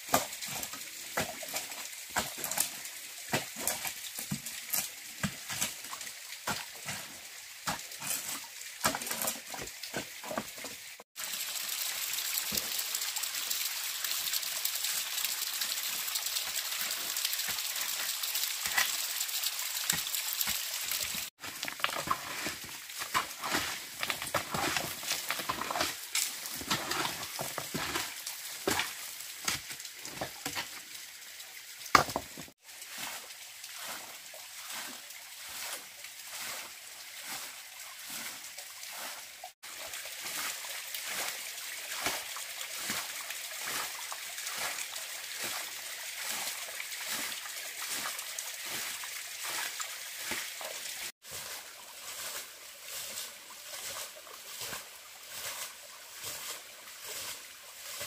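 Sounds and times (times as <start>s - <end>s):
trickling water: 0.0s - 58.0s
hands scraping wet sand and stones: 19.9s - 30.6s.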